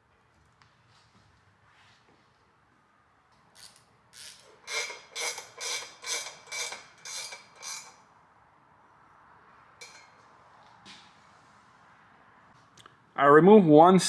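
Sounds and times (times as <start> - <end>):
hand ratchet clicking: 3.6 - 8.0.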